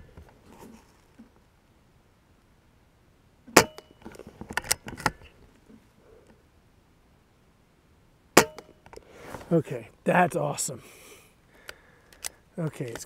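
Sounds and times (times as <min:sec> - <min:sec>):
rifle bolt clicks: 0:11.6 - 0:13.0.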